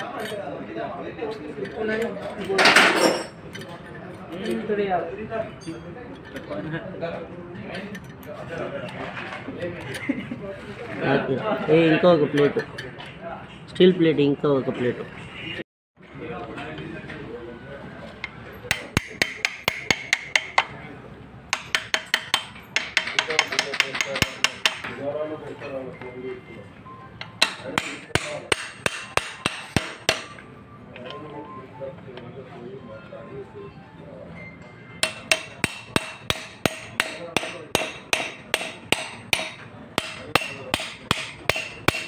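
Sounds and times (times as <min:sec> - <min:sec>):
sharp metallic taps on gearbox parts: 0:18.2 - 0:20.7, 0:21.5 - 0:25.0, 0:27.2 - 0:30.4
hammer blows on metal: 0:35.0 - 0:42.0.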